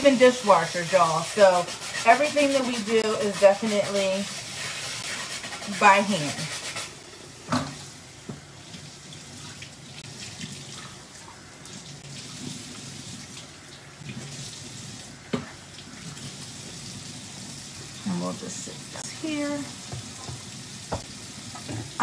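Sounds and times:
tap running into sink: 0:15.3 - 0:15.6, 0:19.8 - 0:22.0.

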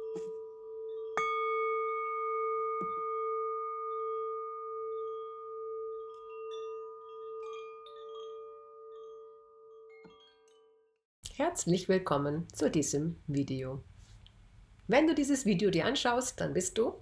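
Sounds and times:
light chime tinkles: 0:00.0 - 0:10.9
low wavering tone: 0:00.0 - 0:10.9.

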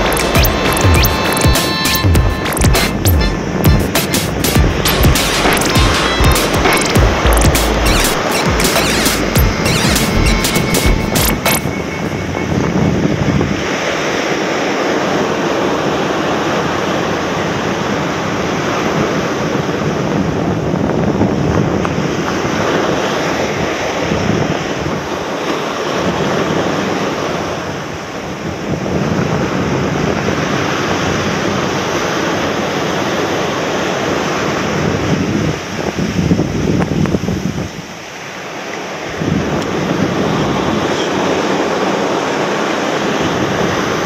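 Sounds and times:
wind buffeting microphone: 0:11.7 - 0:14.4, 0:34.3 - 0:38.0, 0:39.1 - 0:42.2
ocean surf breaking on beach: 0:11.7 - 0:44.0.

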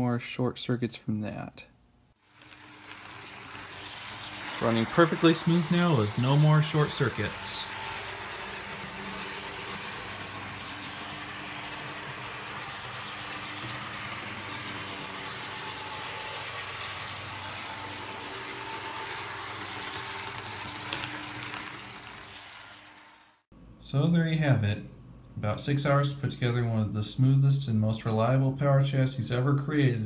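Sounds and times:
model locomotive motor humming: 0:02.2 - 0:23.4.

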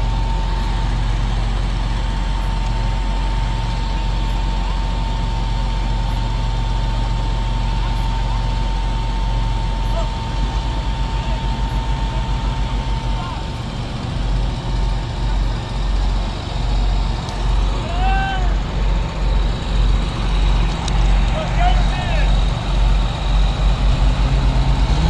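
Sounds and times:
high whine: 0:00.0 - 0:25.0
low rhythmic throb: 0:00.0 - 0:25.0
tractor diesel engines running: 0:00.0 - 0:25.0.

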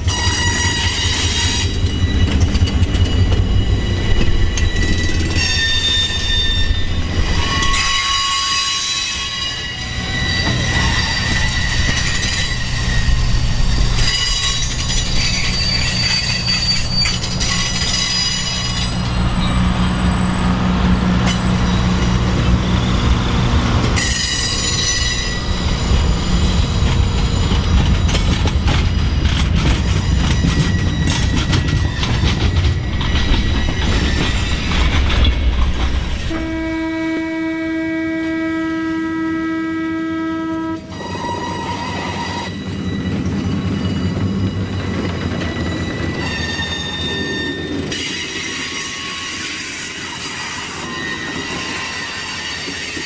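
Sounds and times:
train wheels squealing: 0:00.0 - 0:36.8, 0:40.7 - 0:53.0
low rumble of cars on rails: 0:00.0 - 0:53.0.

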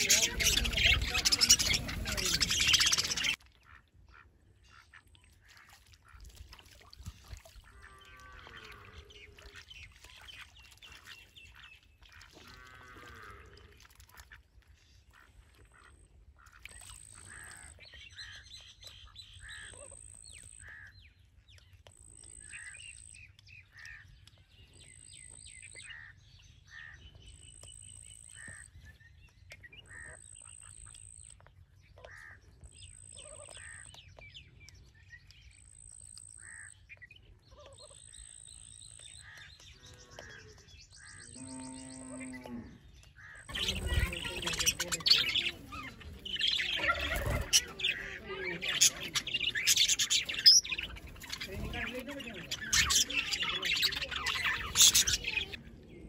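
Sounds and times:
ducks quacking faintly: 0:00.0 - 0:18.4, 0:35.8 - 0:56.0.

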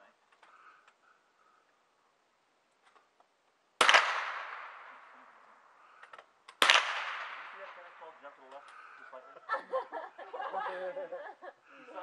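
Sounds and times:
rifle shot with echo: 0:03.8 - 0:05.7, 0:06.6 - 0:08.4.

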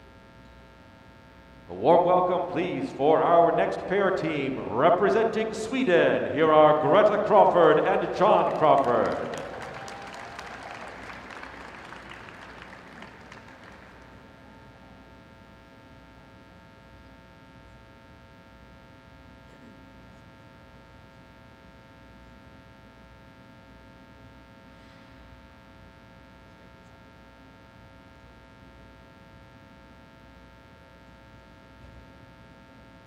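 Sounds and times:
applause: 0:07.5 - 0:14.8.

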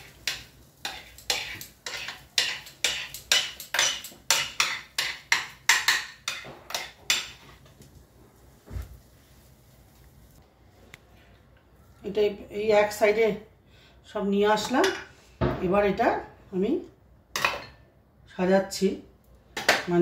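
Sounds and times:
metal spoon scraping a dish: 0:00.2 - 0:07.4.

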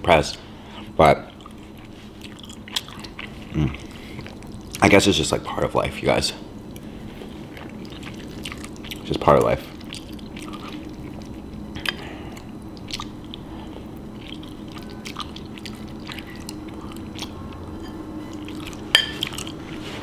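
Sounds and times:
faint steady hum: 0:00.0 - 0:20.0
chewing food: 0:01.3 - 0:04.9, 0:06.6 - 0:19.7
wet mouth clicks: 0:12.8 - 0:13.4.

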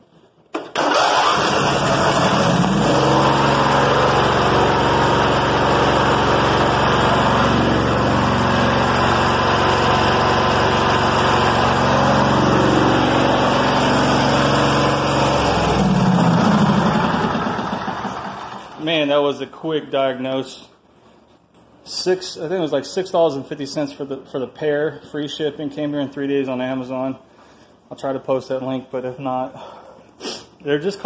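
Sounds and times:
riding mower engine running: 0:00.7 - 0:18.8.

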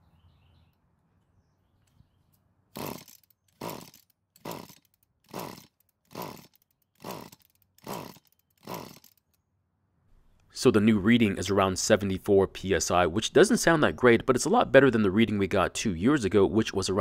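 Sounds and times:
recoil pull-starter yanked: 0:02.8 - 0:09.4.

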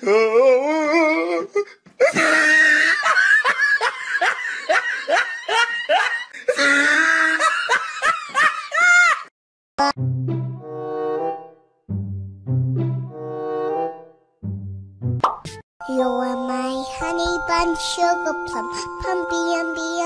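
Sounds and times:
person laughing hard: 0:02.0 - 0:09.3
background music low notes: 0:10.0 - 0:20.0.

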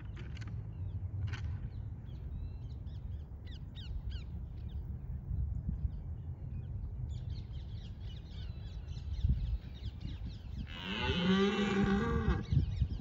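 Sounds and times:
deer stag roaring: 0:10.8 - 0:12.4.

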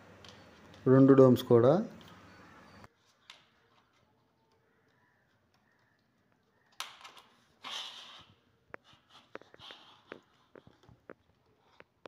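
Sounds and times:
rustling scrapes: 0:07.5 - 0:11.8.

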